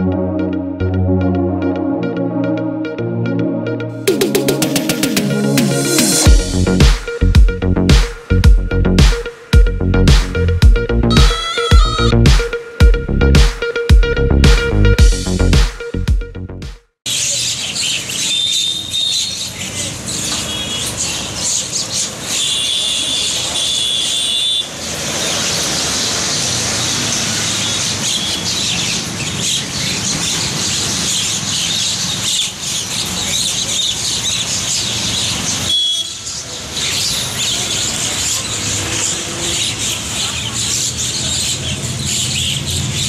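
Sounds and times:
street traffic noise: 0.0 - 12.8, 17.1 - 43.0
high held bird calls: 11.1 - 12.2, 17.2 - 23.4
birds chattering and calling: 17.1 - 23.6, 25.2 - 43.0.

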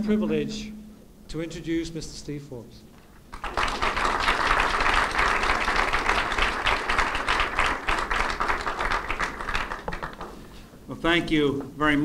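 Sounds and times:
audience applauding: 3.3 - 10.4.

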